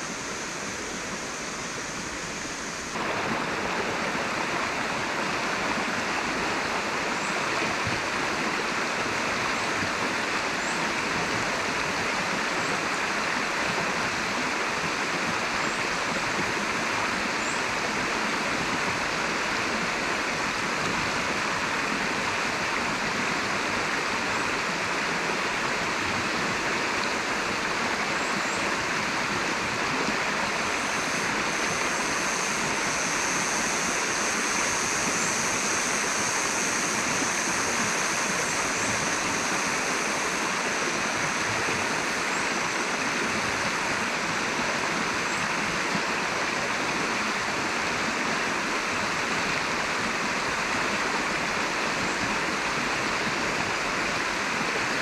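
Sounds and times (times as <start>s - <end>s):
river water rushing: 0.0s - 55.0s
high-pitched buzz: 30.4s - 44.0s.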